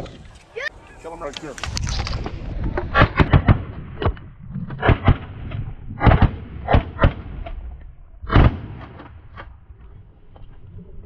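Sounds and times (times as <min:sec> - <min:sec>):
shotgun blasts: 0:02.9 - 0:04.2, 0:06.0 - 0:07.4, 0:08.2 - 0:09.4.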